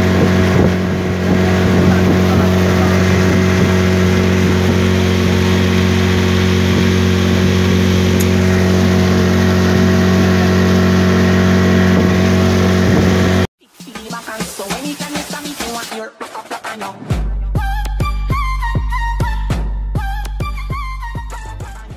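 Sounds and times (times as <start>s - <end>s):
outboard motor drone: 0.0s - 13.5s
wind: 0.0s - 13.5s
water spray rushing: 0.0s - 16.0s.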